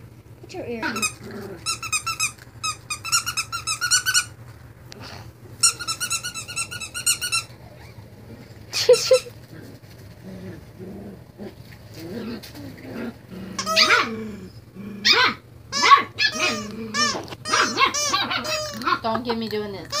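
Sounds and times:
squeaky dog toy squeaking: 0.8s - 4.4s, 5.6s - 7.5s, 13.6s - 14.1s, 15.1s - 19.0s.

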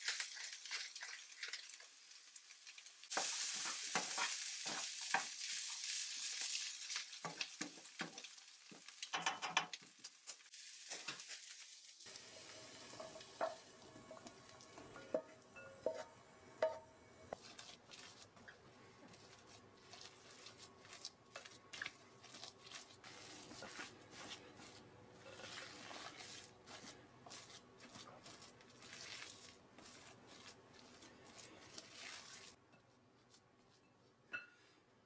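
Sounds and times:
spatula squishing mashed potato: 3.1s - 5.3s, 13.0s - 34.5s.

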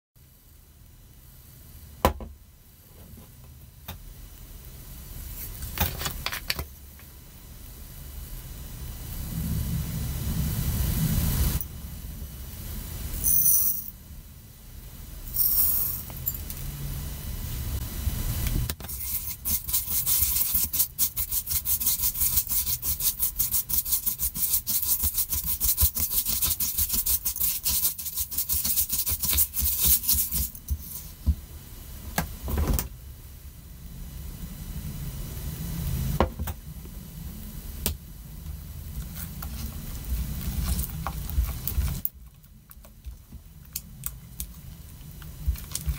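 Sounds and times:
knock: 2.0s - 2.3s
spatula stirring sugar in glass bowl: 18.9s - 31.0s.

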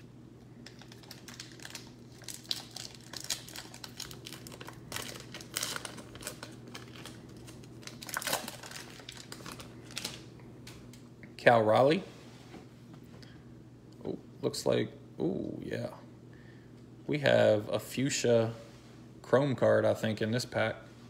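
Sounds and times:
foil wrapper crinkling: 0.6s - 10.3s.

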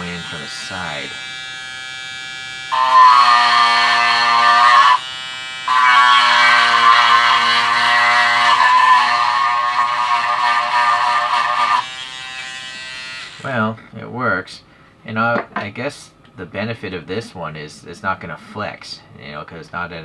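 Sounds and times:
electric sander buzzing: 0.0s - 13.5s.

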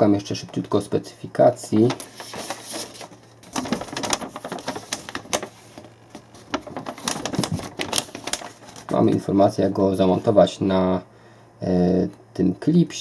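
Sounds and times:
paper rustling and crackling: 1.6s - 9.4s.

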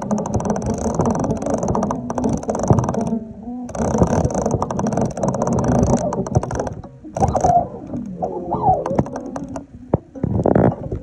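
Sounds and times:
fishing reel clicking: 0.0s - 8.1s, 8.8s - 9.6s.

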